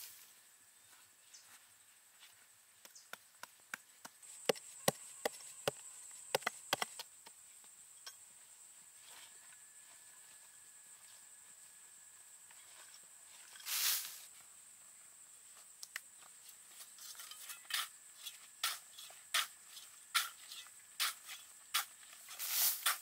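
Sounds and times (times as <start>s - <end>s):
sharp knocks: 4.4s - 7.0s.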